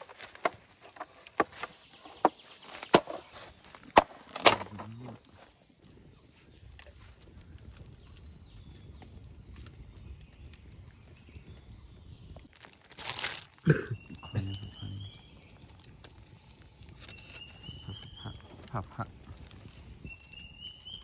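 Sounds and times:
plastic bag rustling: 0.0 - 5.5, 12.5 - 13.8
wood fire crackling: 0.0 - 21.0.

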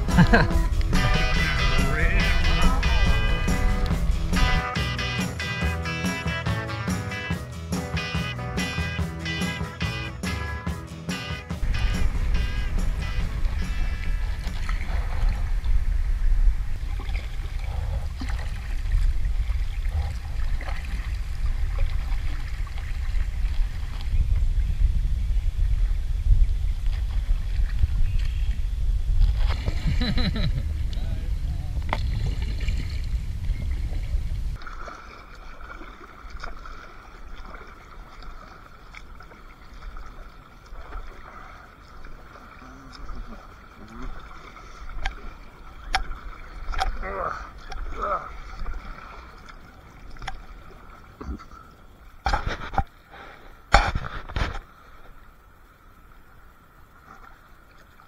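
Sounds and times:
loud low rumble: 0.0 - 5.8, 11.5 - 18.1
low rumble: 0.0 - 6.6, 10.1 - 34.6
water trickling around kayak: 0.0 - 6.9, 11.6 - 58.0
paddle splashes: 0.0 - 7.2, 8.0 - 24.7, 26.5 - 58.0.

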